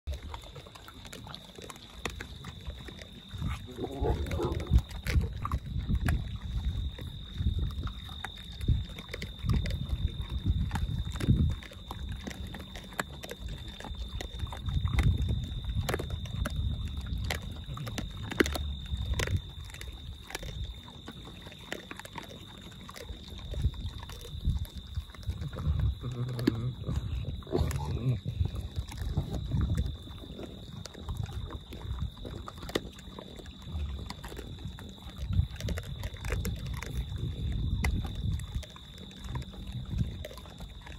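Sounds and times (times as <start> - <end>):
peccaries crunching corn: 0.1 - 40.9
low grunting: 3.4 - 4.9, 25.3 - 28.7.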